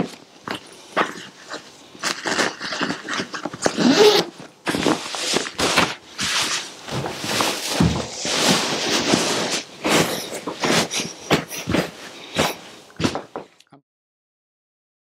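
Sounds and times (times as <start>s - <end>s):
zip closing: 3.6s - 5.8s
fabric rustling: 3.9s - 13.4s
fabric scuffs: 3.9s - 13.4s.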